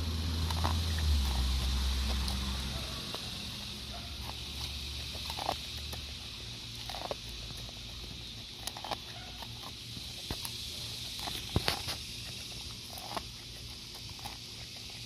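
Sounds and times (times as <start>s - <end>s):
dog chewing corn cob: 0.0s - 15.0s.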